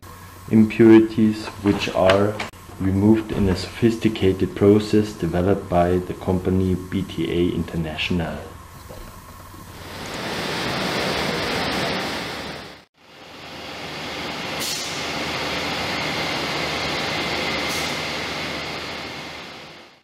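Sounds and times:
machinery running: 8.0 - 20.0.

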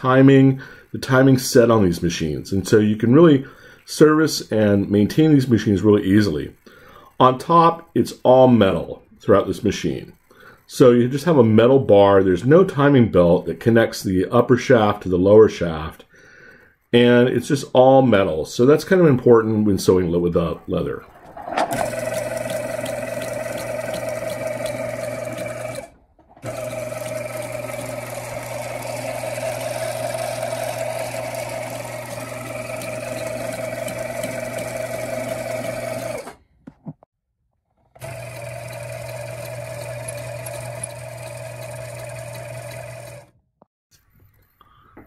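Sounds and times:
sewing machine winding bobbin: 20.8 - 36.5, 37.9 - 43.3
sewing machine stitching: 21.0 - 36.5, 37.9 - 43.4.

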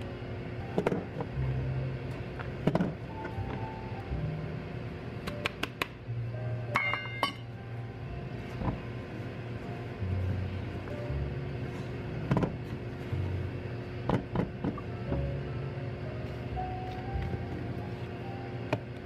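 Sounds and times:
low steady hum: 0.0 - 19.0
quiet background music: 0.0 - 19.0
metal clinks on steel bowl: 6.8 - 7.5.

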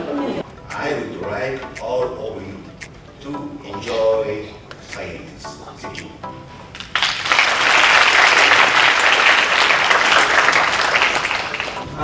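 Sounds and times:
audience applauding: 6.7 - 11.9.

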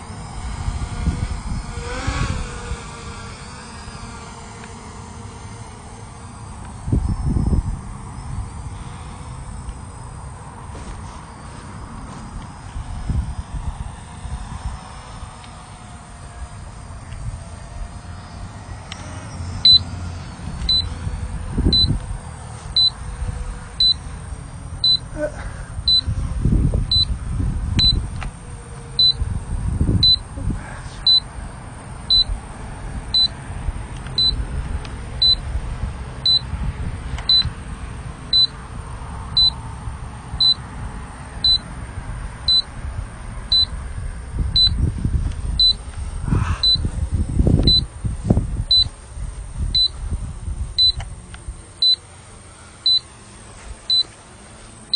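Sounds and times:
wind rumble on microphone: 0.0 - 52.0
high electronic warning beep: 19.6 - 19.9, 20.6 - 21.0, 21.7 - 22.0, 22.8 - 23.0, 23.8 - 24.0, 24.8 - 25.1, 25.9 - 26.1, 26.9 - 27.1, 27.8 - 28.0, 29.0 - 29.2, 30.0 - 30.3, 31.1 - 31.3, 32.1 - 32.3, 34.2 - 34.4, 35.2 - 35.4, 36.2 - 36.5, 37.3 - 37.5, 38.3 - 38.5, 39.4 - 39.6, 40.4 - 40.6, 41.4 - 41.7, 42.5 - 42.7, 43.5 - 43.7, 44.5 - 44.8, 45.6 - 45.8, 46.6 - 46.9, 47.6 - 47.9, 48.7 - 48.9, 49.8 - 50.0, 50.8 - 51.0, 52.8 - 53.1, 53.9 - 54.1.

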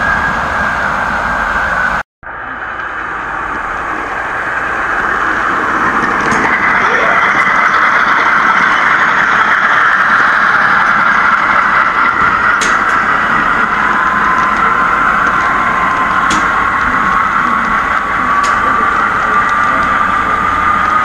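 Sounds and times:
model train wheels clattering: 5.7 - 21.0.

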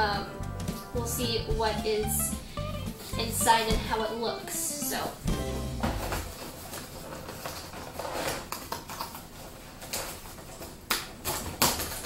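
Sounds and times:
cardboard box rustling: 5.8 - 8.5.

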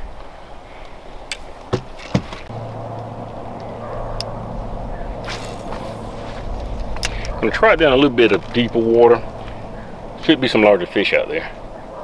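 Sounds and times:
electric trolling motor humming: 2.5 - 10.9.

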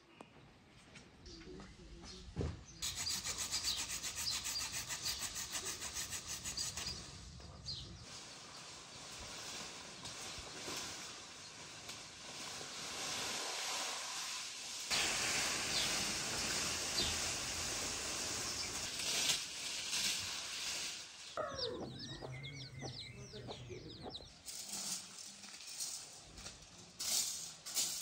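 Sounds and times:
small birds chirping: 0.0 - 9.5, 15.6 - 19.0, 21.2 - 24.5
steady hiss: 8.1 - 21.4
chickens clucking: 21.4 - 24.4.

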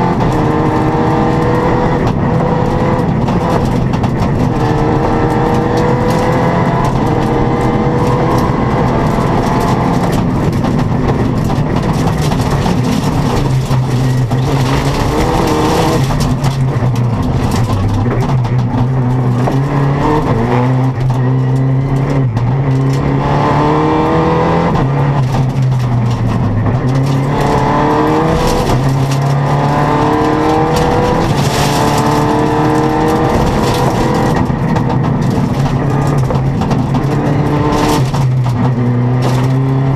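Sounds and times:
rally car engine accelerating: 0.0 - 39.9
road and wind noise: 0.0 - 39.9.

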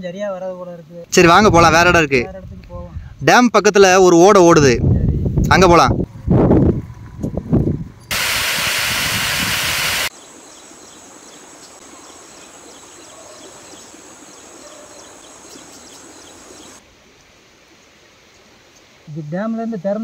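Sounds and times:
loud rushing hiss: 8.1 - 10.5
insects buzzing: 8.1 - 19.1.

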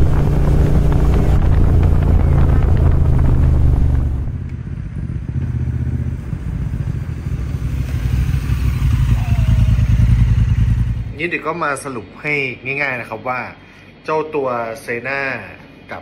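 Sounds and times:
motorcycle riding drone in helmet: 0.0 - 11.2
motorcycle riding past: 0.0 - 11.2.

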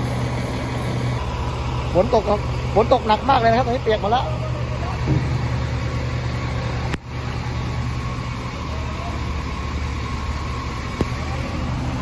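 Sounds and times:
large engine running: 0.0 - 12.0
heavy rain: 0.1 - 12.0.

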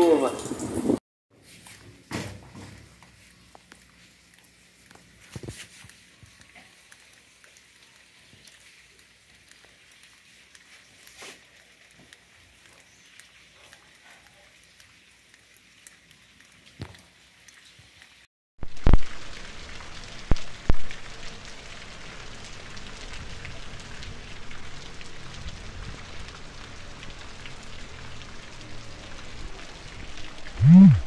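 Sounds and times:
light rain falling: 0.0 - 1.0, 2.0 - 31.0
sharp drips: 3.2 - 18.2.

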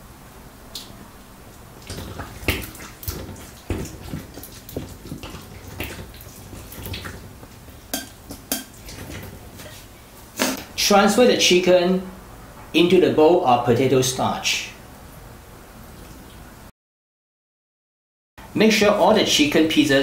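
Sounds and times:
wet squelching of batter: 1.6 - 10.5.

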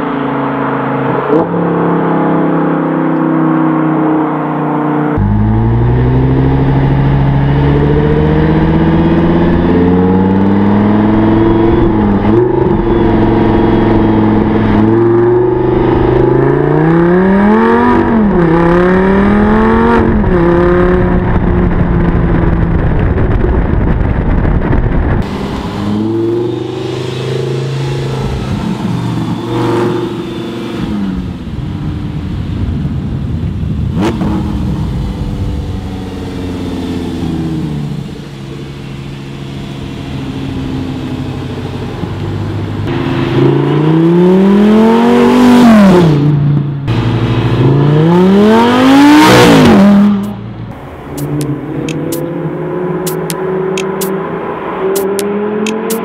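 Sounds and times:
sports car engine revving: 25.2 - 31.6, 33.8 - 56.0.

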